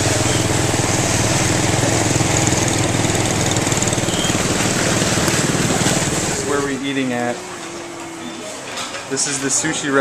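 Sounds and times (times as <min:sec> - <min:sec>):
small motorbike engine puttering: 0:00.0 - 0:06.9.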